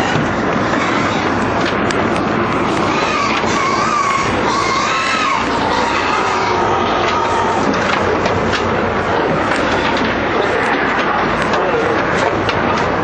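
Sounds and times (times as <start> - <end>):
pigs squealing: 0.0 - 1.4, 2.7 - 8.0
loud steady din: 0.0 - 13.0.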